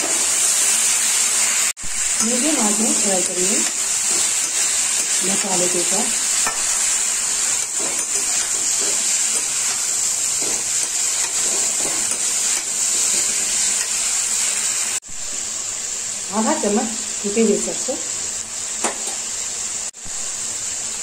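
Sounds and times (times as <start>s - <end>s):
food sizzling in a pan: 0.0s - 21.0s
metal spatula scraping pan: 6.4s - 12.6s.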